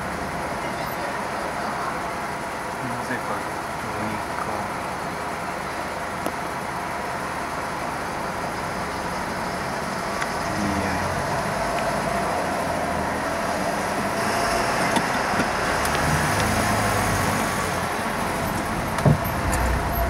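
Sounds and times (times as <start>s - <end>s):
car engine and road noise: 0.0s - 20.0s
thump: 19.0s - 19.6s.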